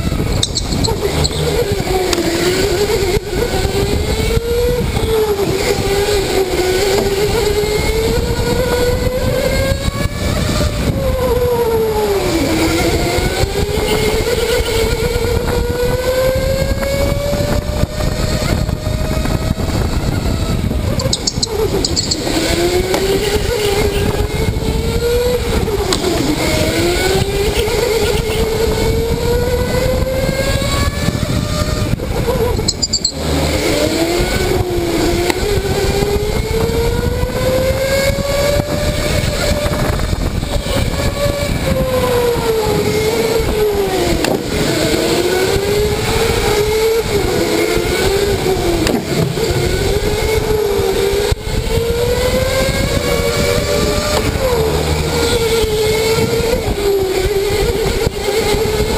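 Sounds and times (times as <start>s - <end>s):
electric go-kart motor whining: 0.0s - 58.9s.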